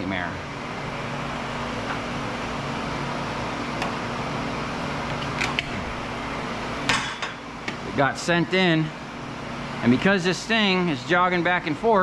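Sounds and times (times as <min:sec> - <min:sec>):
electric motor humming: 0:00.4 - 0:06.9.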